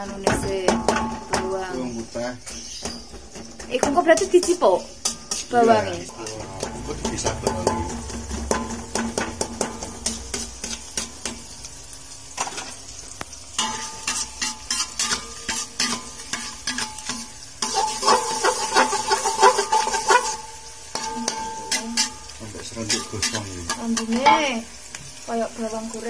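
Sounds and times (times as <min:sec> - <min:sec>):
garlic sizzling in hot oil: 0:00.0 - 0:26.0
metal spatula scraping a wok: 0:00.2 - 0:24.9.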